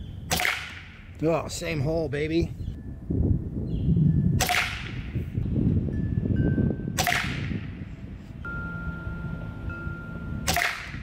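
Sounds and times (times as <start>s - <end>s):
air rifle shots: 0.3s - 1.1s, 4.4s - 5.2s, 7.0s - 7.8s, 10.4s - 11.0s.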